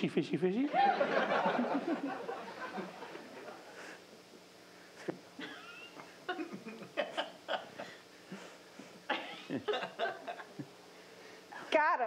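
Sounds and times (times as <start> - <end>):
people laughing: 0.7 - 4.0, 5.4 - 8.0, 9.1 - 10.8.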